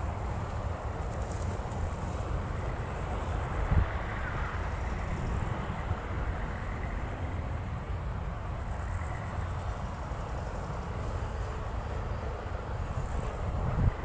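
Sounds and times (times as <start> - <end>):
insects chirring: 0.0 - 14.0
wind rumbling on microphone: 0.0 - 14.0.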